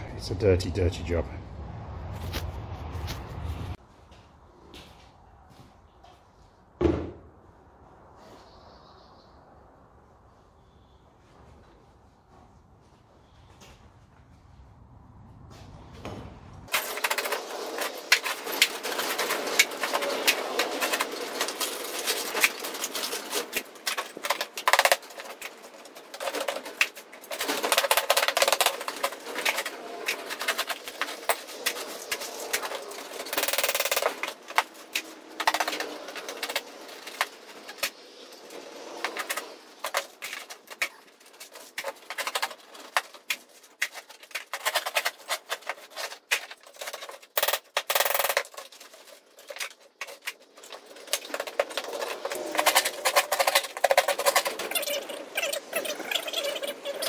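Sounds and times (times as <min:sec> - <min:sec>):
steel scraps clattering and scraping: 0:16.7 - 0:57.0.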